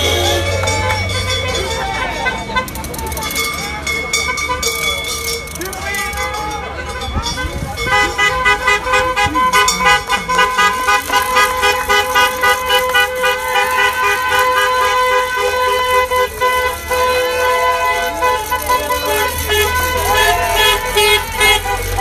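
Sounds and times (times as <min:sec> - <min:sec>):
car horns honking: 0:00.0 - 0:22.0.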